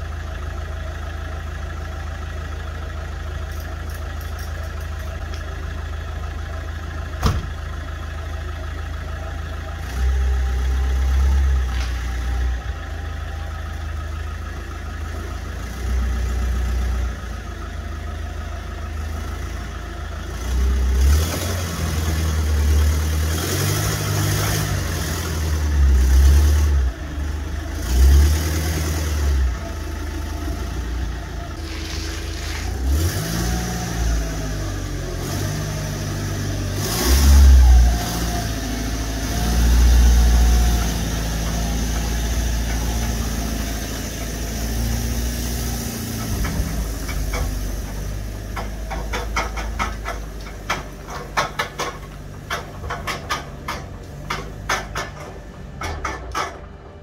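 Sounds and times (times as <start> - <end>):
diesel van engine idling and revving: 0.0 - 57.0
van door shutting: 7.2 - 7.6.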